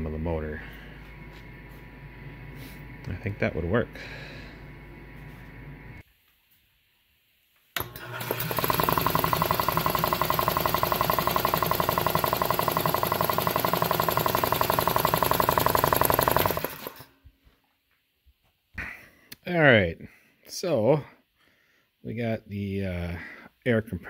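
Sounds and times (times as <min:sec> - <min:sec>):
air compressor running: 0:00.5 - 0:06.0, 0:07.8 - 0:17.1.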